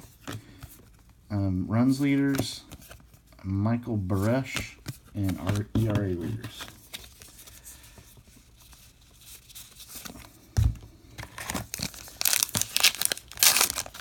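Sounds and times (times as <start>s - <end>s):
handling of trading cards: 1.8s - 14.0s
wrapper tearing and crinkling: 11.3s - 14.0s.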